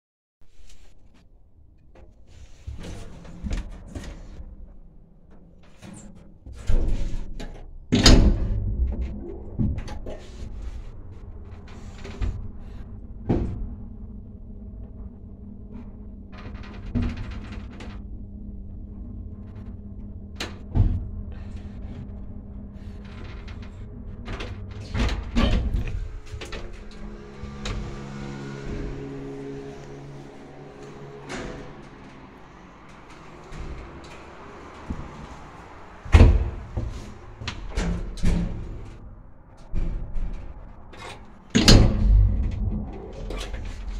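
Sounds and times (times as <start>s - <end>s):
steady mechanical hum: 2.0s - 43.9s
lift doors knocking and clunking: 14.8s - 43.9s
lift door banging shut: 24.4s - 38.8s, 41.6s - 43.9s.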